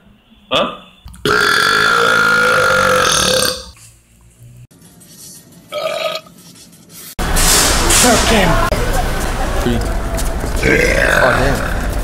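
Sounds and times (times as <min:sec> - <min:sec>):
man belching: 0:01.2 - 0:03.7.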